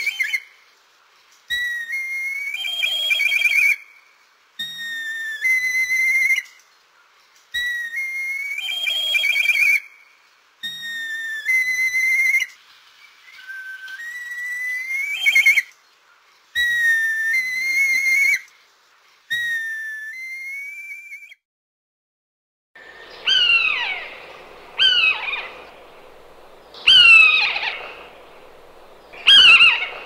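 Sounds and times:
bird whistled calls with trill: 1.5s - 3.8s, 7.6s - 9.9s, 22.8s - 30.0s.

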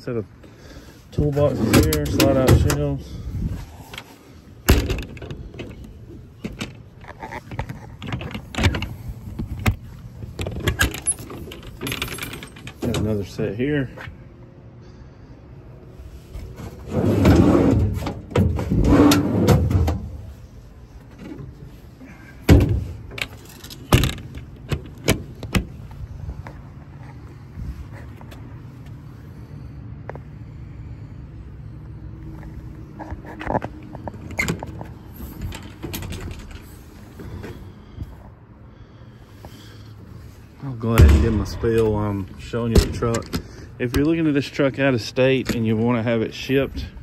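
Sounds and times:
metal knocks and latch clicks: 1.6s - 2.9s, 3.9s - 13.2s, 22.5s - 25.7s, 42.7s - 44.2s
heavy metal thud: 40.9s - 43.5s.

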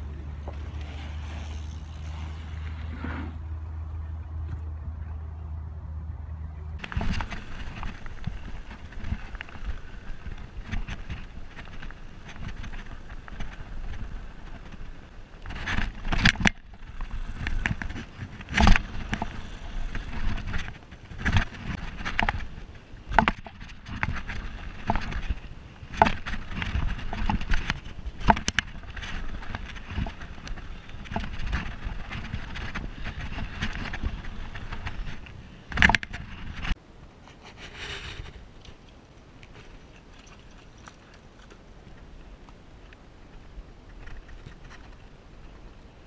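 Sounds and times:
bike tyres crunching over gravel: 0.0s - 4.6s, 6.8s - 36.8s.

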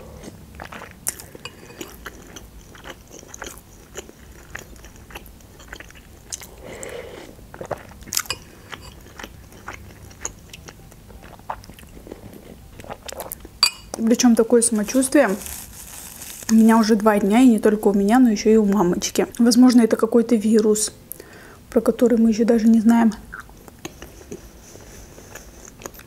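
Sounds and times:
slurping and chewing: 0.0s - 14.0s, 14.6s - 17.0s, 23.3s - 26.0s
metal spoon clinking on glass bowl: 13.6s - 14.0s.

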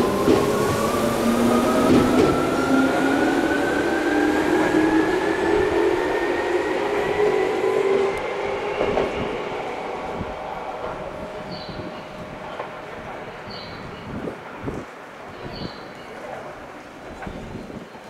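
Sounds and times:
rail noise: 0.0s - 18.0s.

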